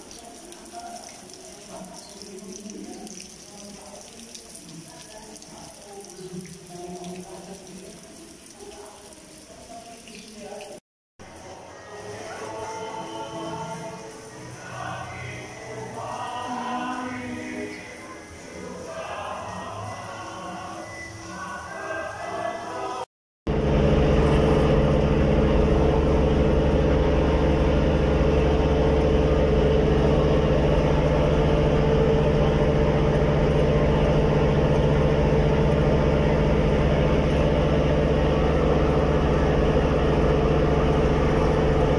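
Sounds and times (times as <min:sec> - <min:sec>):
boat engine drone: 0:23.5 - 0:41.9.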